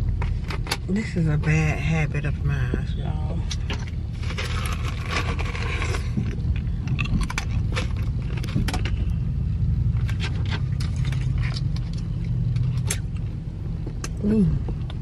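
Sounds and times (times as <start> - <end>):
low rumble of car: 0.0 - 15.0.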